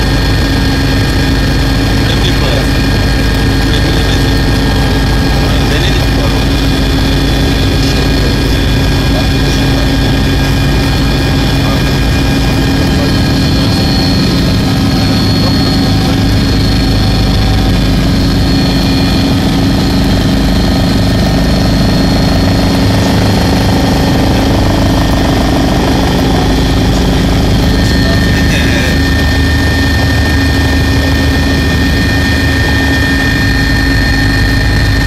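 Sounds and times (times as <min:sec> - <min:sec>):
helicopter rotors and engine drone: 0:00.0 - 0:35.0
steady whining tones: 0:00.0 - 0:35.0.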